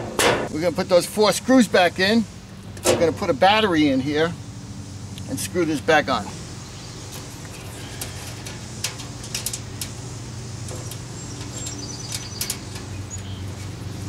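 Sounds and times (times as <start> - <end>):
steady low hum: 0.0 - 14.0
clicks and taps on metal panel: 8.0 - 10.0, 10.6 - 12.9.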